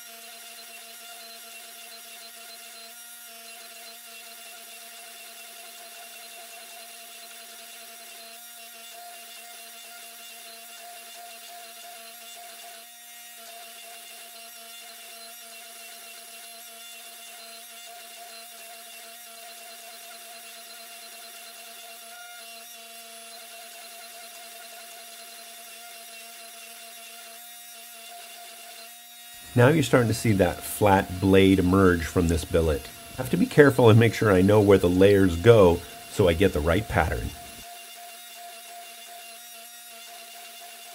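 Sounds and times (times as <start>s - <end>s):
hydraulic press motor humming: 29.4s - 37.6s.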